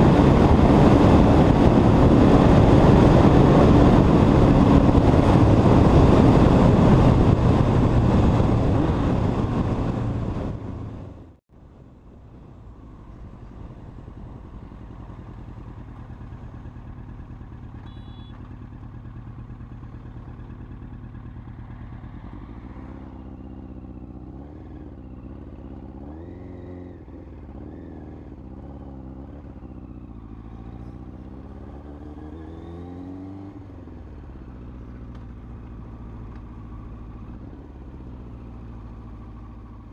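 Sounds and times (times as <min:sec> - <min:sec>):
wind rushing on microphone: 0:00.0 - 0:11.3
motorcycle engine revving: 0:00.0 - 0:11.4, 0:12.7 - 0:39.9.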